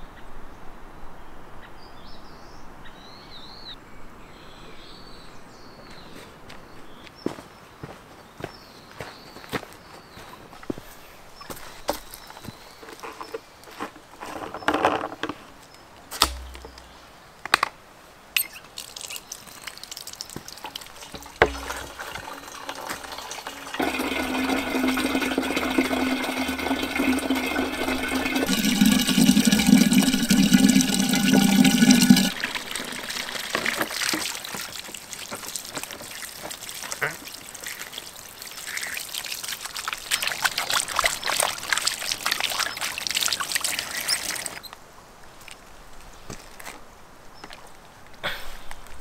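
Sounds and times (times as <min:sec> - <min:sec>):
knocks and thumps: 0:16.2 - 0:17.0, 0:21.0 - 0:23.1
water pouring into plastic container: 0:18.6 - 0:44.6.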